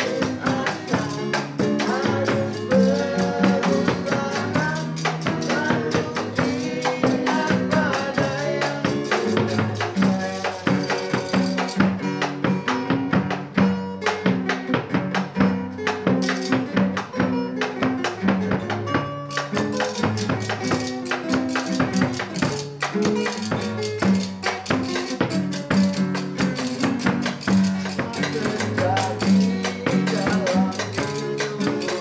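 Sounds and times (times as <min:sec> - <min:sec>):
jingling percussion beat: 0:00.0 - 0:14.6, 0:15.2 - 0:17.2, 0:18.0 - 0:32.0
strummed acoustic guitars: 0:00.0 - 0:32.0
walking bass line: 0:21.8 - 0:32.0.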